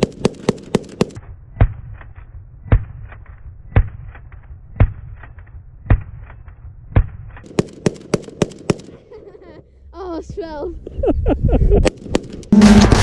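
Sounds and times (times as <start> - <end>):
rifle shots: 0.0 - 1.8, 6.9 - 9.0.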